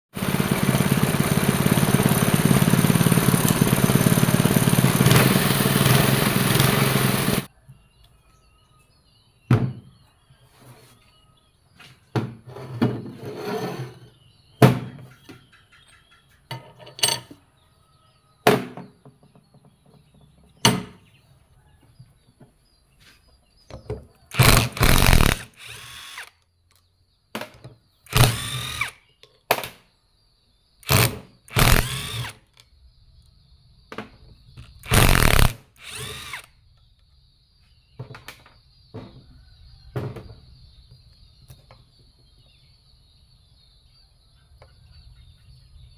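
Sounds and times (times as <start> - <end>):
impact wrench whirring: 0.2 - 7.5, 24.3 - 26.4, 28.1 - 29.0, 30.8 - 32.4, 34.7 - 36.5.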